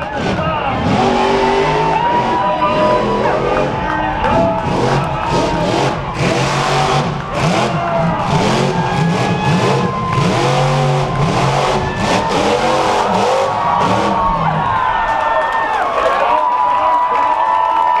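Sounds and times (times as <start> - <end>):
monster truck engine revving: 0.0 - 16.1.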